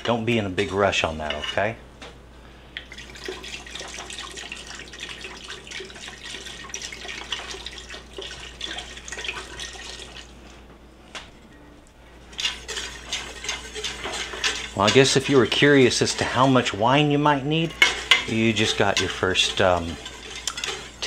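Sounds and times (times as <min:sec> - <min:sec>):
wine pouring into a pot: 0:02.9 - 0:10.4.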